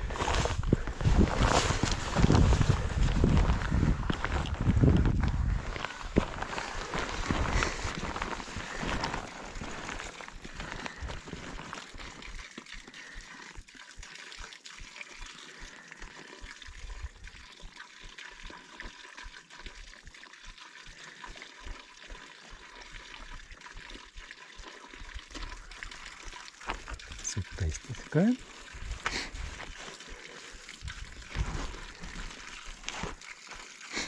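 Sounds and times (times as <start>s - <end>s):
stream water trickling: 0.0s - 34.0s
low rumbles on microphone: 0.2s - 5.7s.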